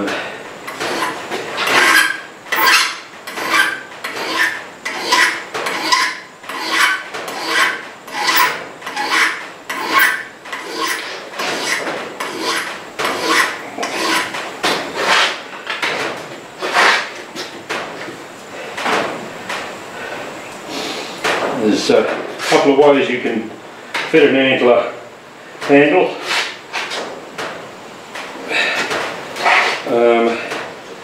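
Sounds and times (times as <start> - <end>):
hand file rasping on steel: 0.8 - 14.4.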